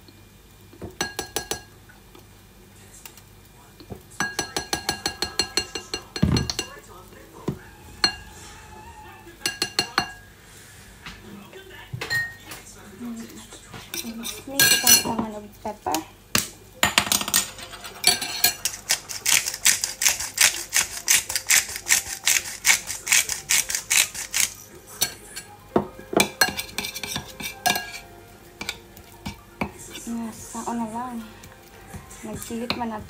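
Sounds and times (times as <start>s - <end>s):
spoon stirring in a bowl: 0.9s - 1.8s, 3.8s - 10.3s, 13.2s - 15.4s, 16.8s - 33.0s.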